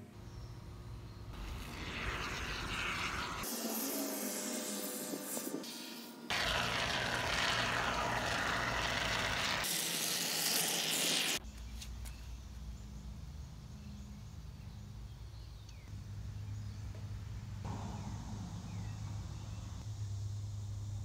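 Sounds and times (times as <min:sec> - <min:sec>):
aerosol foam can hissing: 0:01.4 - 0:11.4.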